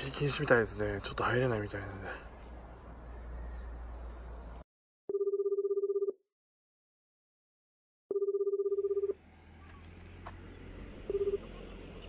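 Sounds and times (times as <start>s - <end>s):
outdoor background noise: 0.0s - 4.6s, 9.1s - 12.0s
telephone ringback tone: 5.1s - 6.2s, 8.1s - 9.2s, 11.1s - 11.5s.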